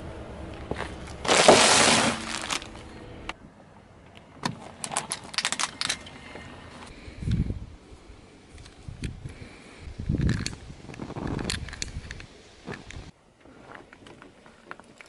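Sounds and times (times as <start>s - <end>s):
snack bag bursting with crunch: 1.1s - 2.7s.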